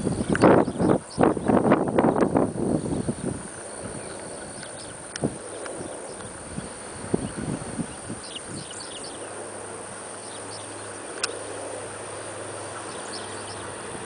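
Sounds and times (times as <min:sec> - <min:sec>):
wind thumps on microphone: 0:00.0 - 0:08.7
distant propeller plane drone: 0:00.0 - 0:14.0
high chirping: 0:12.7 - 0:13.8.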